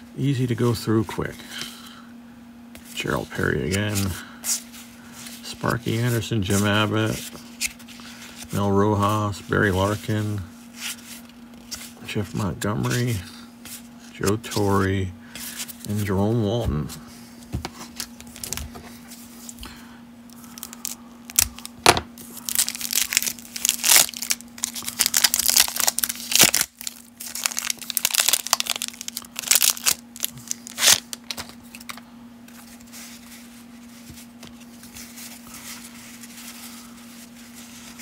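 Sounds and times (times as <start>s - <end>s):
card handling: 20.3s - 38.0s
cellophane wrapper crackling: 20.4s - 32.0s.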